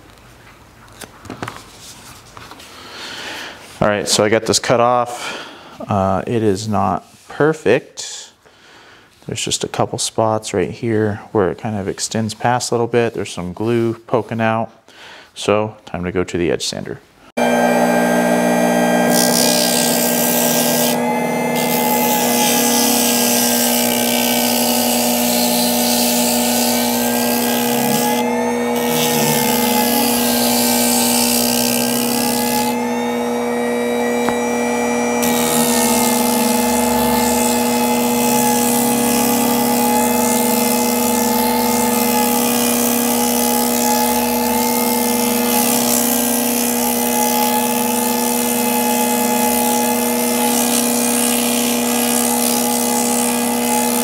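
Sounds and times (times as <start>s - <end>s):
sander motor humming: 17.4s - 54.0s.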